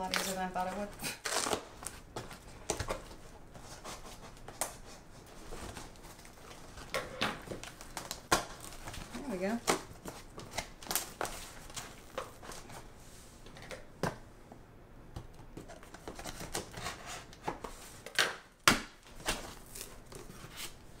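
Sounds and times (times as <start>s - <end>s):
scissors slitting packing tape: 1.2s - 1.6s.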